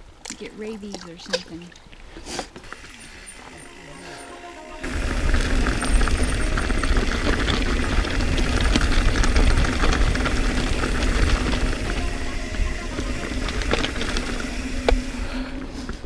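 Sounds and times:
bike tyres crunching over gravel: 2.5 - 16.0
wind rumble on microphone: 4.8 - 16.0.

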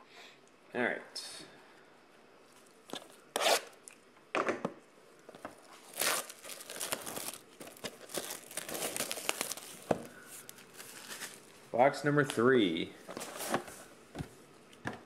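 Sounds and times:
plastic shrink wrap crinkling: 5.6 - 11.6.

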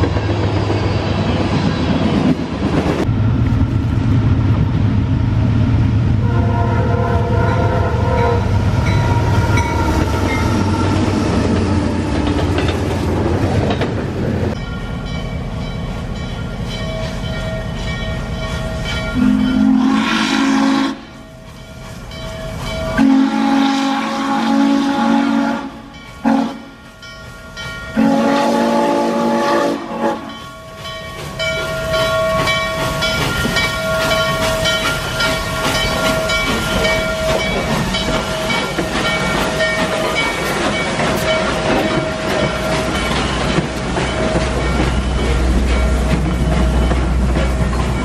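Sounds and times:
train wheel noise: 0.0 - 48.0
steam whistle blasts: 6.2 - 11.1, 19.2 - 21.2, 23.0 - 26.8, 28.0 - 30.4.

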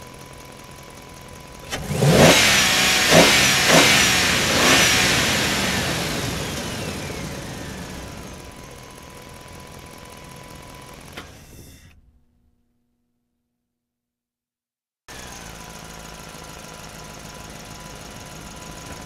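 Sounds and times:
engine revving: 1.6 - 8.8.

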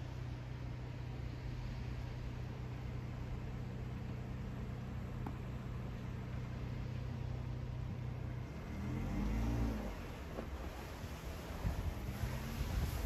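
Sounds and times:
low hum of road traffic: 0.0 - 13.0
vehicle passing by: 8.2 - 13.0.

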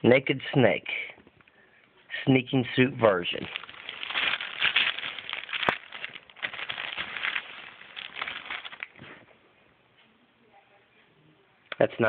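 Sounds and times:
plastic packaging crinkling: 3.0 - 9.3.

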